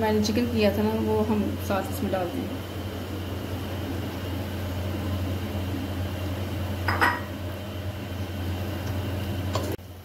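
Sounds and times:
low mechanical hum: 0.0 - 10.0
glass bowl clinking against pot: 6.8 - 7.4.

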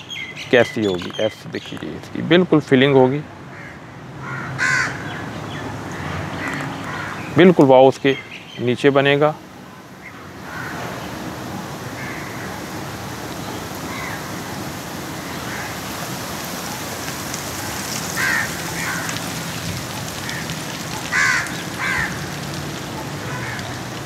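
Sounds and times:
steady background hiss: 0.0 - 24.0
crows cawing: 3.5 - 7.4, 10.1 - 11.0, 11.9 - 12.7, 13.8 - 16.3, 17.5 - 24.0.

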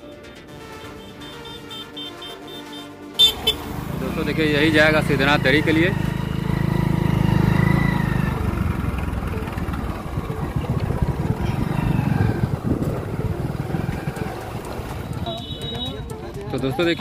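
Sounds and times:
motorcycle engine running: 0.8 - 17.0
wind rumbling on microphone: 9.8 - 15.4.

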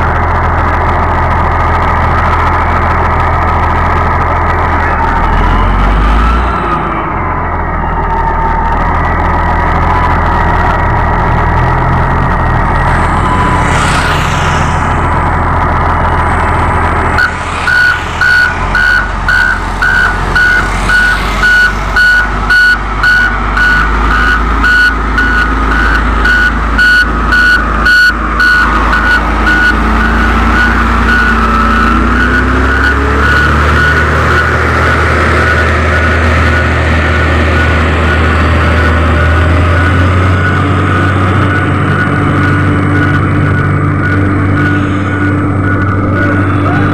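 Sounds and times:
diesel engine running: 0.0 - 46.9
reversing alarm beeping: 11.6 - 46.9.

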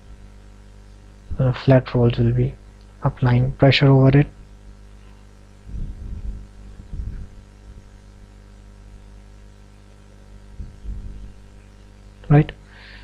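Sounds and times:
low electrical mains hum: 0.0 - 13.0
soft low bumps: 5.7 - 7.9, 10.5 - 11.4.

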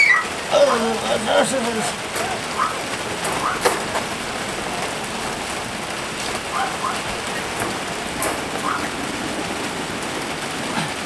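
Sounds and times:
steady hiss: 0.0 - 11.0
puppies squeaking: 2.2 - 3.7, 6.4 - 7.6, 8.5 - 9.0.

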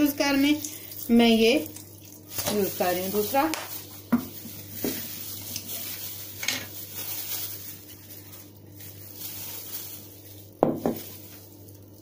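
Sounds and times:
bottle knocking on counter: 10.6 - 11.0.

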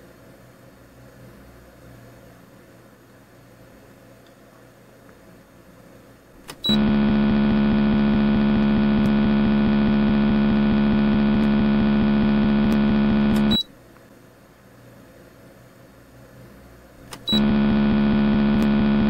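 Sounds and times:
electric motor humming: 6.8 - 13.5, 17.4 - 19.0
motor switch click: 17.1 - 17.4.

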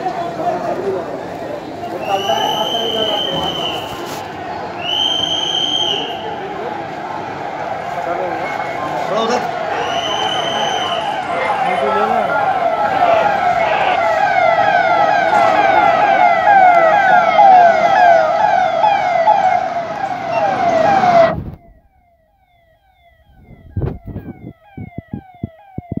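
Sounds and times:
police siren yelping: 8.3 - 26.0.

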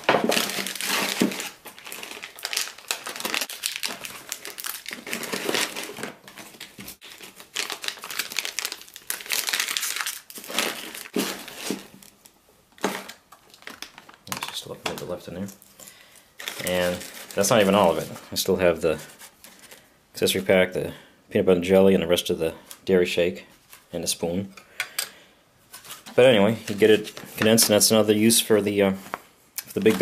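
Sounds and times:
plastic packaging crinkling: 0.0 - 19.9, 29.0 - 30.0.

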